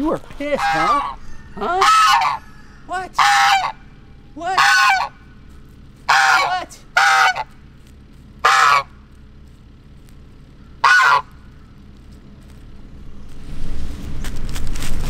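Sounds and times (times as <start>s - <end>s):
goose honking: 0.0s - 9.4s, 10.5s - 11.8s.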